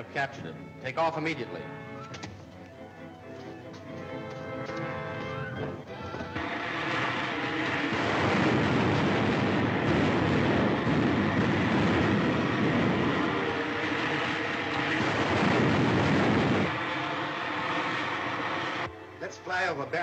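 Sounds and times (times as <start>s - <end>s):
rocket engine roar: 5.5s - 19.0s.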